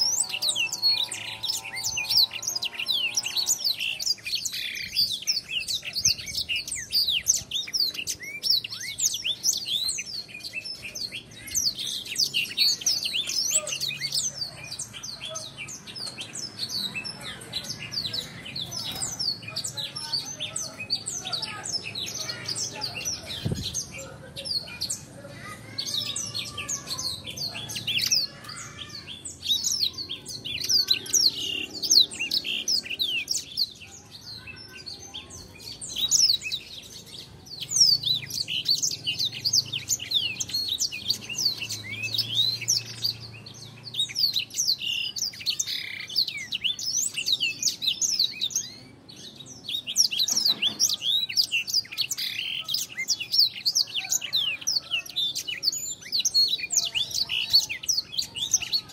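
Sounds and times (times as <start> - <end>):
canary twittering and chirping: 0.0 - 58.9.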